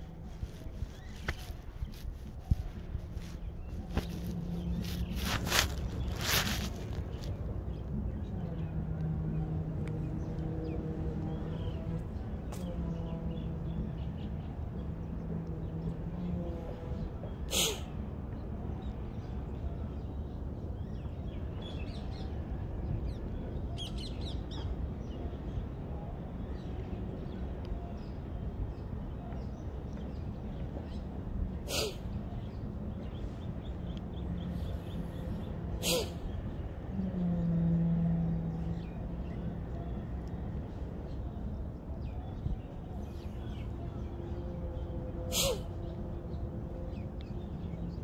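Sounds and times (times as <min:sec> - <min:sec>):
birds calling: 0:00.0 - 0:08.3, 0:17.5 - 0:17.9, 0:31.6 - 0:37.0, 0:44.8 - 0:48.0.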